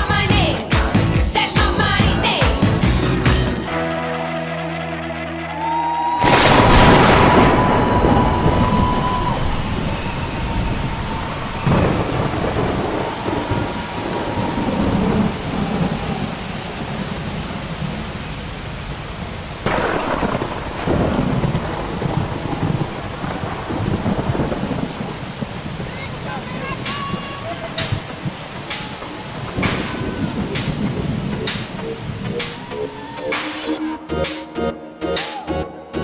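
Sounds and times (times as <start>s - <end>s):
steady rain: 5.4s - 33.8s
thunder claps: 6.2s - 18.6s, 19.2s - 33.8s.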